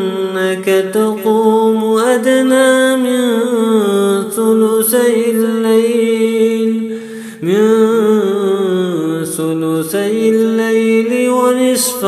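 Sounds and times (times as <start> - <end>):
man reciting melodically: 0.0 - 12.0
man breathing: 6.9 - 7.4.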